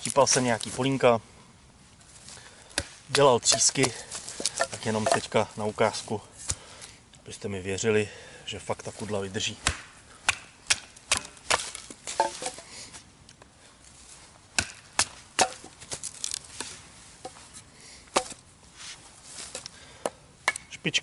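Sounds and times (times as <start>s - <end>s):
wood cracking as it splits: 9.6s - 12.6s.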